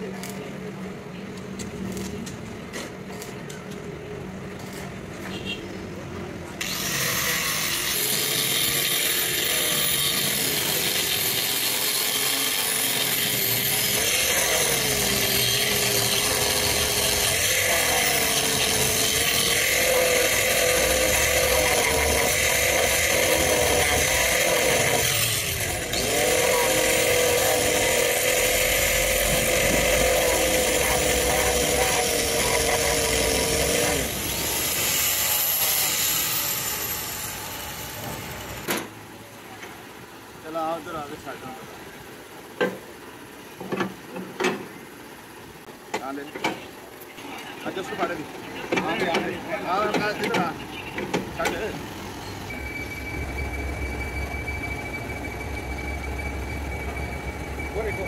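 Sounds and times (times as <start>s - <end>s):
angle grinder grinding steel: 6.6s - 38.7s.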